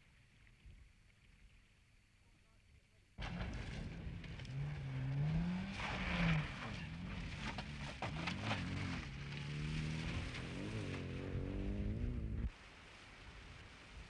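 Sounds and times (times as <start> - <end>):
car engine revving: 3.2 - 12.5.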